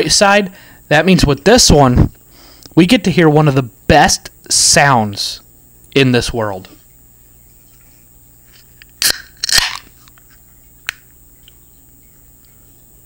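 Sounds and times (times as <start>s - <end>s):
beer can cracked open: 9.0s - 9.9s.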